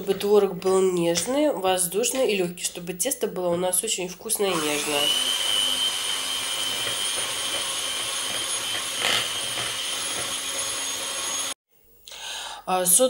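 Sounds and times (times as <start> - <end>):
electric hand mixer whining: 4.4 - 11.6.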